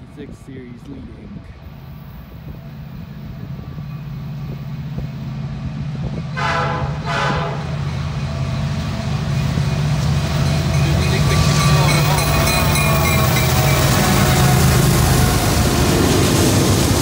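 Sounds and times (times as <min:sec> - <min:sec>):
diesel locomotive engine rumble: 0:00.0 - 0:17.0
train air horn blasts: 0:06.3 - 0:07.8, 0:12.2 - 0:16.0.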